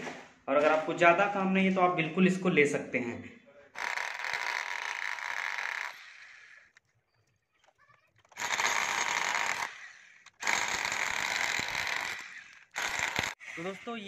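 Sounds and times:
hammer drill drilling into masonry: 3.8s - 6.8s, 7.6s - 14.0s.

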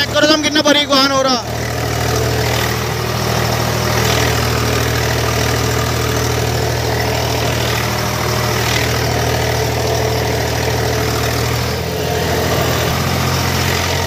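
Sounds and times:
tractor diesel engine under load: 0.0s - 14.0s.

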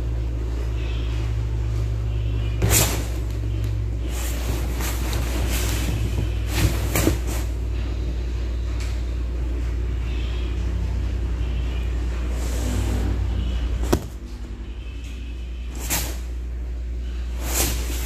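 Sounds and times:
steady low hum: 0.0s - 18.0s
cat scratching leather sofa: 4.0s - 7.6s, 13.9s - 14.2s.

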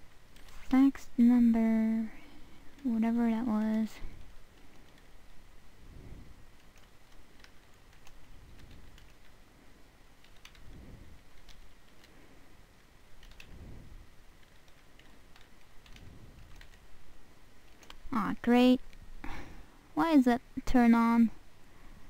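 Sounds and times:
keyboard typing: 2.7s - 5.4s, 6.6s - 9.4s, 10.2s - 12.2s, 13.1s - 13.6s, 14.4s - 16.9s, 17.6s - 18.2s.

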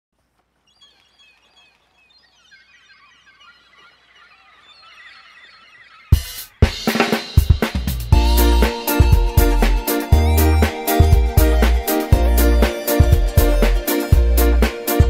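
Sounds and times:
birds chirping: 0.2s - 15.0s
song with drums: 6.1s - 15.0s.

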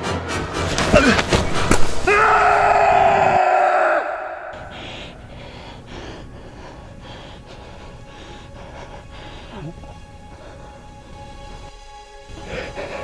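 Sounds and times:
man screaming: 2.0s - 4.6s.

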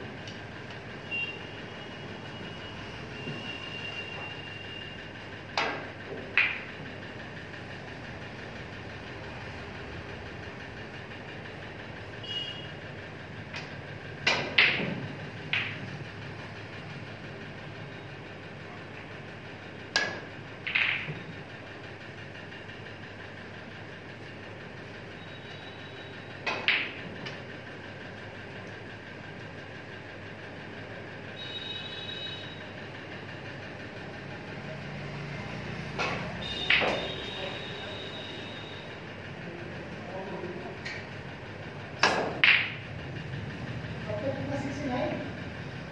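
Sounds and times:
steady mechanical hum: 0.0s - 45.9s
snooker balls clicking: 5.5s - 6.9s, 13.5s - 16.0s, 19.8s - 21.9s, 26.4s - 27.5s, 36.0s - 37.2s, 41.9s - 43.0s.

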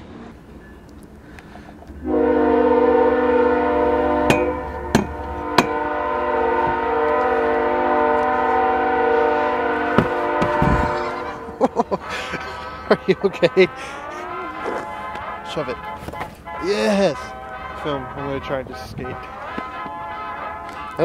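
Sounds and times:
distant train horn: 1.5s - 21.0s
sharp knocks: 4.3s - 5.8s, 10.0s - 10.9s.

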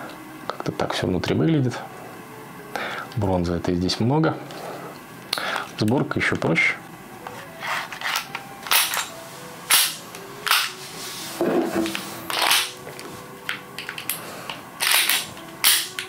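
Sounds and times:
pistol parts clicking into place: 8.0s - 9.1s, 9.7s - 10.7s, 11.9s - 12.8s, 13.5s - 16.0s.

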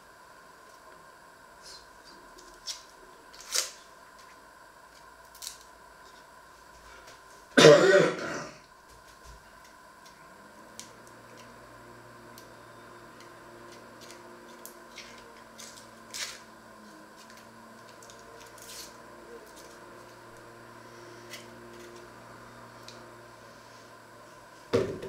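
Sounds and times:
steady low hum: 0.0s - 25.0s
onion skins crackling: 1.6s - 6.3s, 13.2s - 20.5s.

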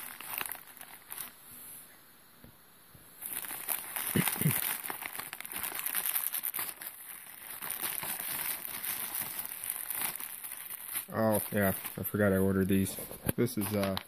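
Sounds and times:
plastic wrapping crinkling: 0.0s - 1.4s, 3.2s - 14.0s.

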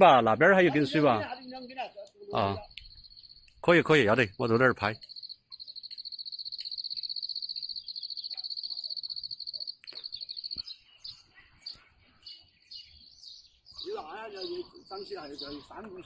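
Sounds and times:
insect trilling: 0.7s - 10.8s
faint insect chirps: 0.8s - 11.4s.

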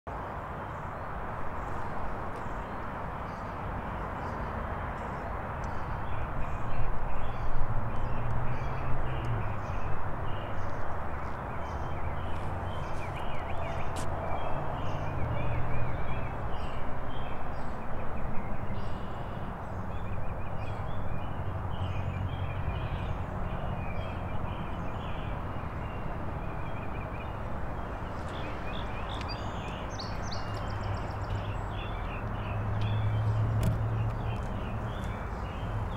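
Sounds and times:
songbirds chirping: 0.1s - 35.9s
footsteps on wet gravel: 12.2s - 14.2s, 27.8s - 31.6s, 32.8s - 35.9s.

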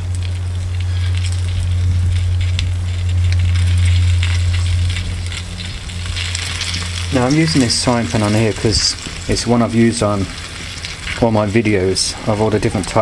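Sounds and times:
bacon sizzling in a frying pan: 0.0s - 13.0s
steady low hum: 0.0s - 13.0s.

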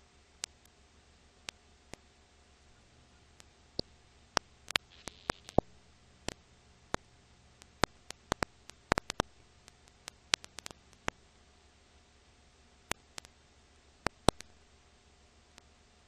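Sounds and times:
faint hiss: 0.0s - 16.0s
low hum: 0.0s - 16.0s
film surface clicks and pops: 3.4s - 11.2s, 14.1s - 14.5s.

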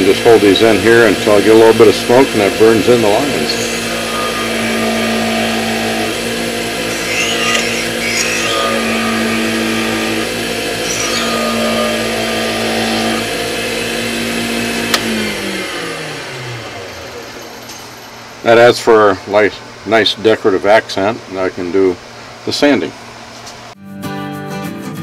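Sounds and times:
wood lathe motor humming: 0.0s - 17.7s
wire rasping on wood: 6.8s - 13.2s.

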